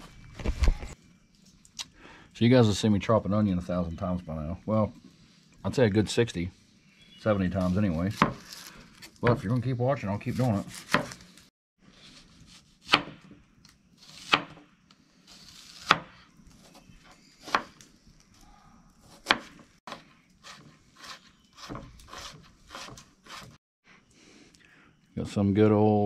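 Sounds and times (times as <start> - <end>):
knife chopping on cutting board: 10.7 - 11.2, 12.5 - 13.3, 14.1 - 14.6, 19.2 - 23.5.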